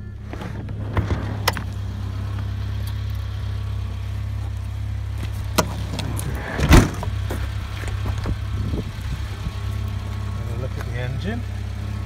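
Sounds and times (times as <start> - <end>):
van engine idling: 0.0 - 12.0
loud clunk: 5.5 - 7.1.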